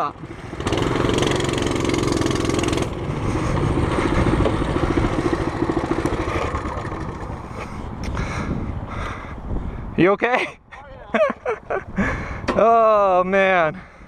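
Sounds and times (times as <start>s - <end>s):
mini bike engine running: 0.0s - 7.8s.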